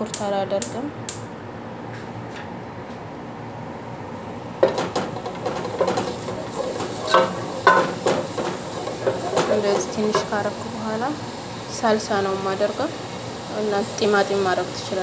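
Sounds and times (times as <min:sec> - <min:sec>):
wooden spoon scraping metal pot: 0:04.6 - 0:10.6
garlic frying hiss: 0:04.6 - 0:15.0.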